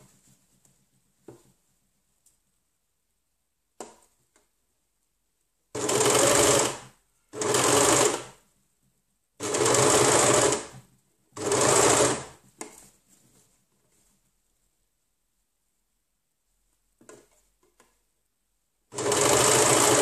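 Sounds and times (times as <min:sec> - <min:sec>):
overlocker stitching: 0:05.8 - 0:08.4, 0:09.4 - 0:10.8, 0:11.4 - 0:12.7, 0:18.9 - 0:20.0.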